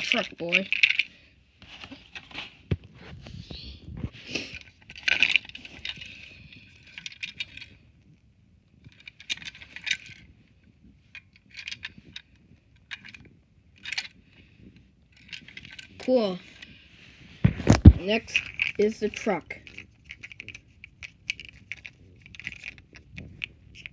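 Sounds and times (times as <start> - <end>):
plastic toy clicking and rattling: 0.0 - 1.1, 4.5 - 7.8, 8.8 - 10.3, 11.1 - 14.2, 15.1 - 16.7, 18.0 - 23.9.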